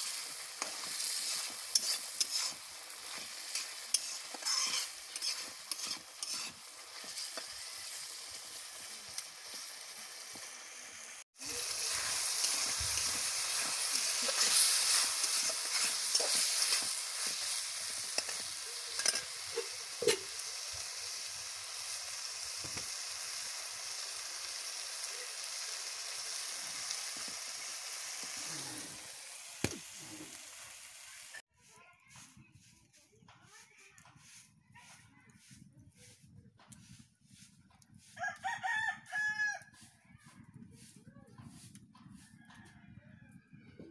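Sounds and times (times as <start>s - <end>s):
spatula scraping pan: 0.0s - 9.8s, 11.6s - 20.4s
meat sizzling in hot oil: 0.0s - 31.5s.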